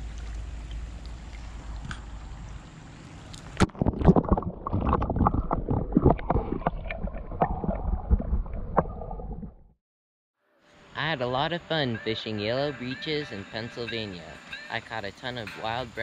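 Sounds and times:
running stream water: 0.0s - 8.0s
underwater gurgling and bubbling: 3.5s - 9.7s.

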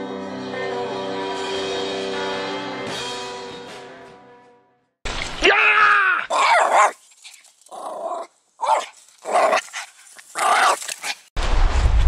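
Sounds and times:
dog barking and growling: 6.2s - 7.0s, 7.7s - 11.3s.

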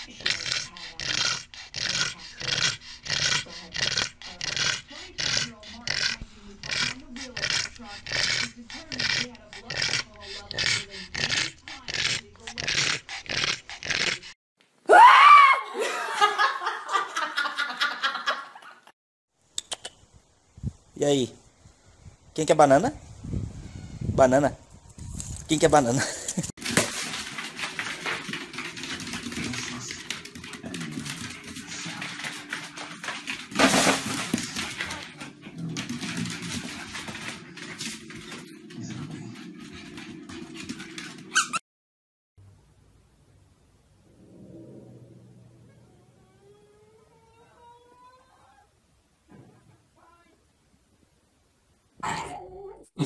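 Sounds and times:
giggling laughter: 15.8s - 18.9s
dogs' claws clicking on wooden floor: 26.6s - 41.3s.

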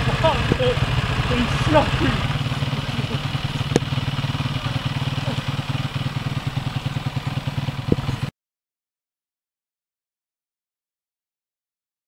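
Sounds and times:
motorcycle engine idling: 0.0s - 8.3s.

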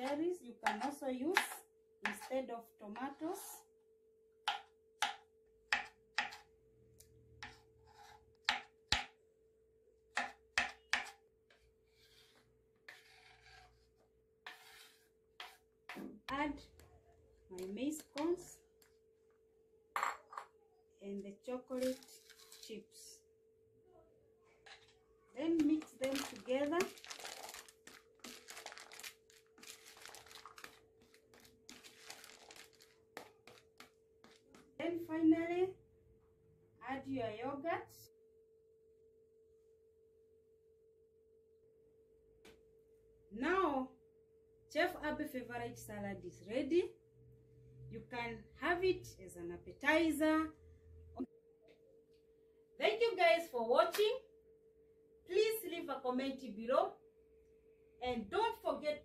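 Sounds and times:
knife chopping on plastic board: 4.5s - 6.5s, 8.4s - 9.2s, 10.1s - 11.2s
food scraped off board: 11.8s - 15.7s.

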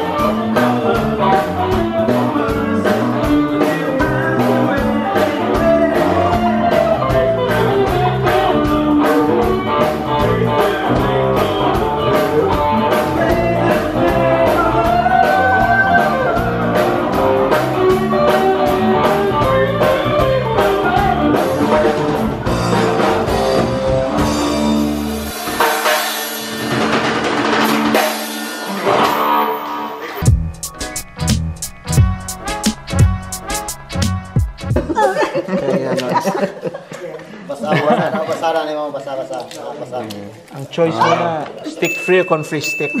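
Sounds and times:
person singing: 0.0s - 22.2s
drum kit beat: 0.0s - 35.2s
guitar: 0.0s - 36.4s.

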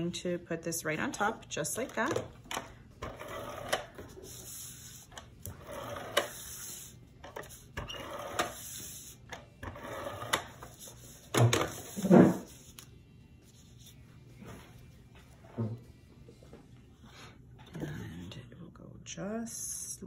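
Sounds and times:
tape dispenser scratchy whirr: 3.0s - 10.8s.

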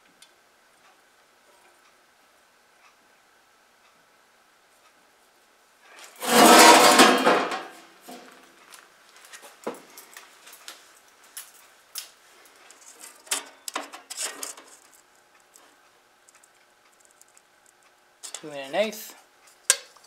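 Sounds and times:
sheet metal scraping and rattling: 6.0s - 8.3s, 12.8s - 15.0s.

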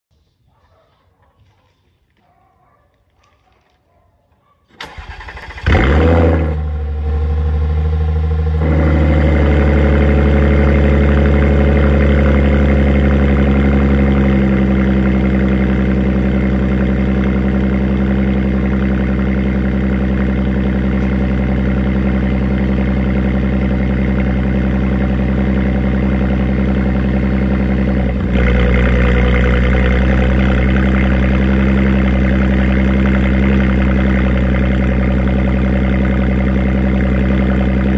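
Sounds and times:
car engine cold start: 4.7s - 7.4s
car engine idling: 4.8s - 37.9s.

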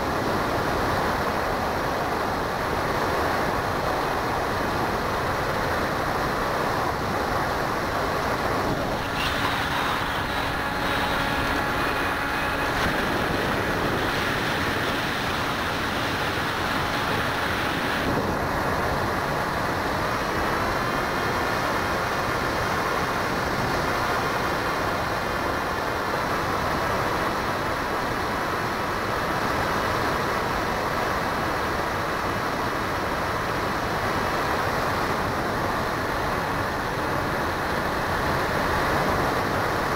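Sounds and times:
electric motor and propeller whine: 0.0s - 28.1s
rushing wind noise: 0.0s - 39.9s.

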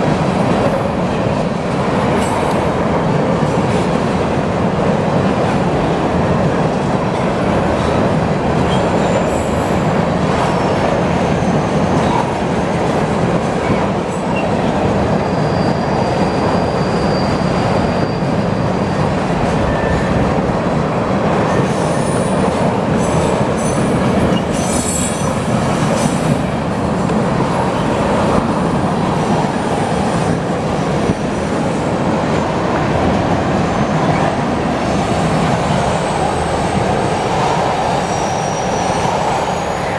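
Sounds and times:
train wheels rumbling on rails: 0.0s - 39.9s
train wheel squeals: 8.6s - 9.8s, 13.6s - 20.4s, 21.5s - 26.4s, 37.8s - 39.9s.

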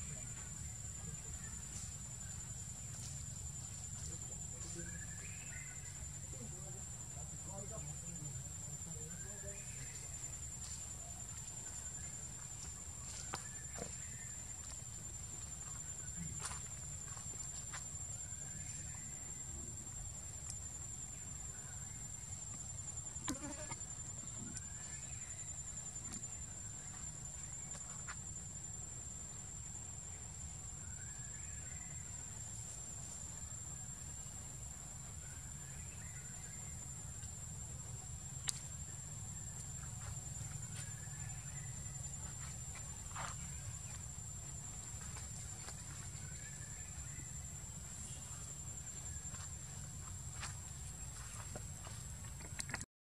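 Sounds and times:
high-pitched insect drone: 0.0s - 32.3s.

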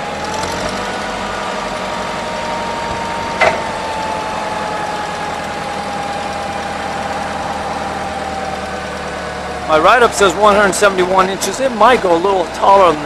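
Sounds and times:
forklift engine under load: 0.0s - 13.0s
hydraulic whine: 0.0s - 13.0s.

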